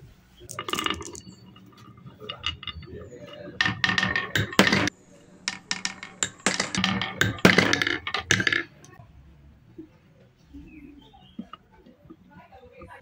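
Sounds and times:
glass marbles clattering on wood: 0:00.4 - 0:09.0.

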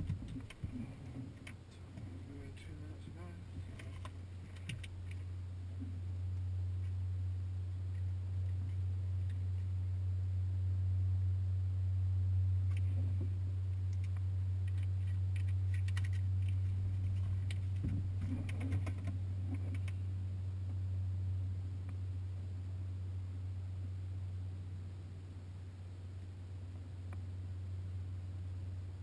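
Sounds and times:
light clicks and rattles: 0:00.0 - 0:05.9, 0:12.7 - 0:20.0.

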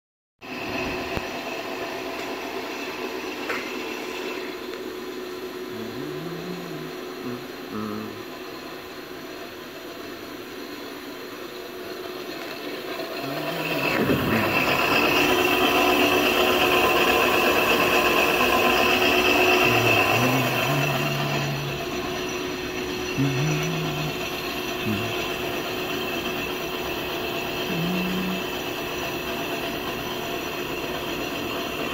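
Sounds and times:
cooling fan whirring: 0:00.5 - 0:31.9
electrical hum: 0:04.3 - 0:31.8
motor whines: 0:05.7 - 0:08.3, 0:11.6 - 0:31.9
constant tones: 0:13.0 - 0:29.1.

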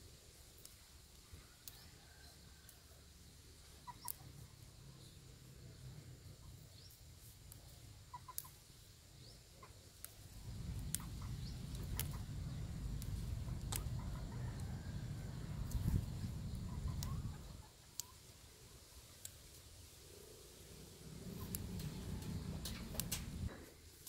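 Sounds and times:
faint bird calls: 0:03.7 - 0:05.2, 0:07.6 - 0:18.9
plant stems snapping: 0:10.0 - 0:14.7, 0:15.3 - 0:18.1, 0:21.2 - 0:23.5
low rumble: 0:10.2 - 0:17.7, 0:20.7 - 0:23.5.

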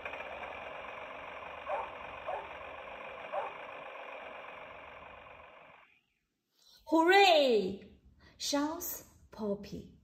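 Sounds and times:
tractor engine from tinny toy speaker: 0:00.0 - 0:06.0.

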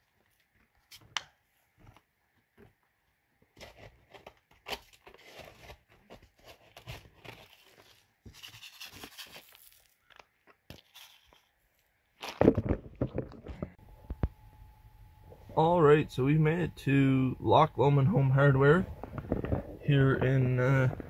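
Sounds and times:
rock salt crunching on ice: 0:08.6 - 0:10.8.

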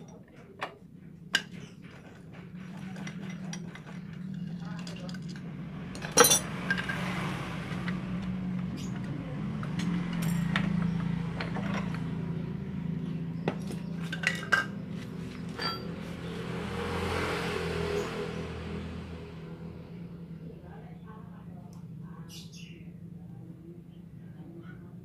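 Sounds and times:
metal parts and tools clinking: 0:00.0 - 0:12.4, 0:13.4 - 0:16.5.

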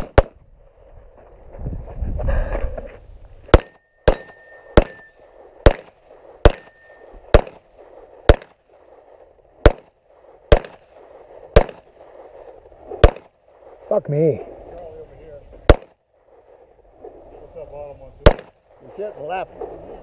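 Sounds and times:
pistol shots with echo: 0:00.0 - 0:00.4, 0:03.5 - 0:07.7, 0:08.3 - 0:08.6, 0:09.6 - 0:09.9, 0:10.5 - 0:10.8, 0:11.5 - 0:11.9, 0:13.0 - 0:13.3, 0:15.6 - 0:16.0, 0:18.2 - 0:18.6.

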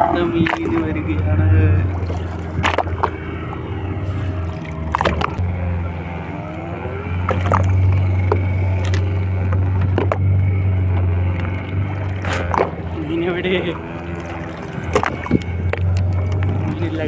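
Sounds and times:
boat engine idling: 0:00.0 - 0:17.0.

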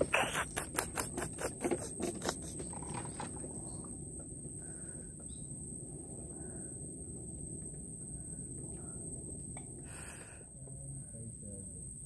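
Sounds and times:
high-pitched insect whine: 0:00.0 - 0:12.0
low rumble: 0:02.6 - 0:12.0
faint bird chirps: 0:04.6 - 0:05.6.

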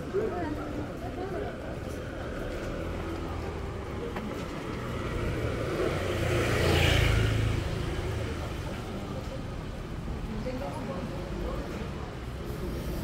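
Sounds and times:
vehicle driving past: 0:04.5 - 0:08.6.

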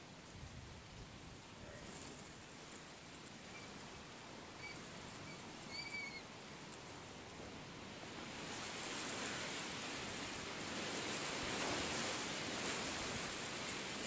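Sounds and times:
hissing outdoor background noise: 0:00.0 - 0:14.0
faint high chirps: 0:04.6 - 0:06.3.

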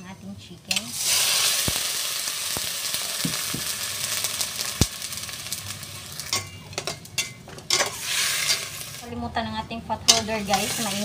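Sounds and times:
meat sizzling in hot oil: 0:00.9 - 0:06.5, 0:07.9 - 0:09.0, 0:10.4 - 0:11.0.

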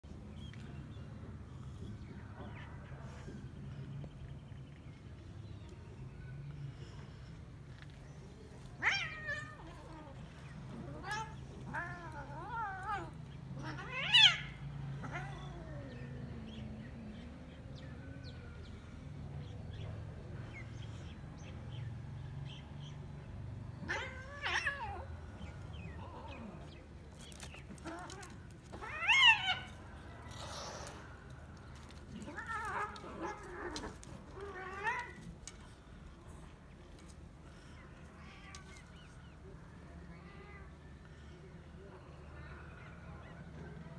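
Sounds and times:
cats yowling and meowing: 0:08.8 - 0:17.2, 0:23.8 - 0:31.1, 0:31.7 - 0:35.6.

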